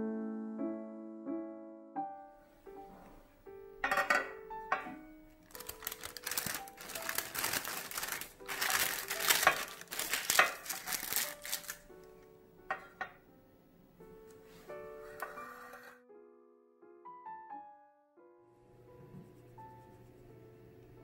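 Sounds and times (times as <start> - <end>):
soft piano music: 0.0 - 21.0
parchment paper crinkling: 5.4 - 12.1.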